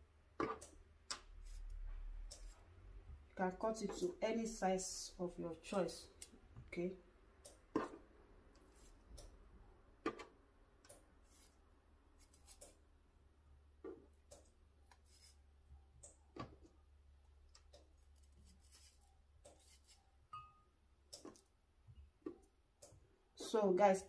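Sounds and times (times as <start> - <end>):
knife cutting aloe leaf: 11.2 - 11.6, 12.2 - 12.8, 18.0 - 20.1.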